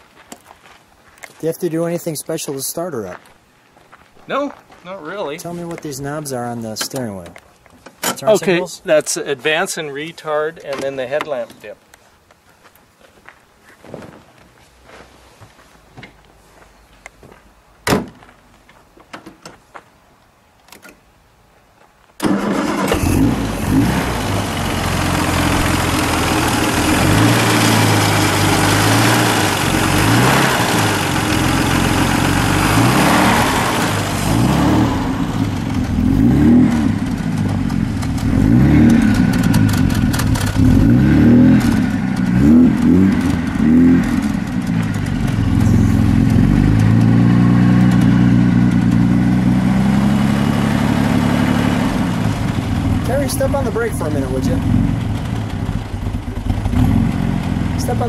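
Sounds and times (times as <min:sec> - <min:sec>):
car engine starting and revving: 0:22.2 - 0:58.0.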